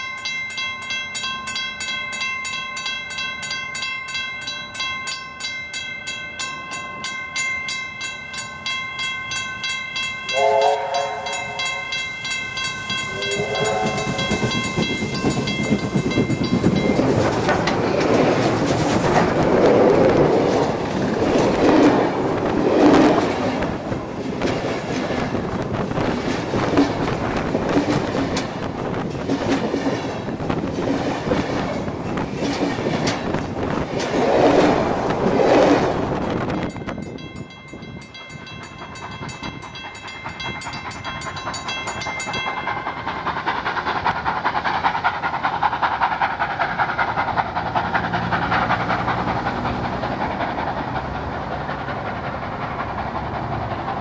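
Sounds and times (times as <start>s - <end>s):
level crossing bells ringing: 0.0s - 18.4s, 36.0s - 43.1s
steam locomotive whistle: 10.3s - 12.0s, 13.1s - 14.6s
rush of steam: 10.3s - 54.0s
wheels clattering over rail joints: 12.0s - 54.0s.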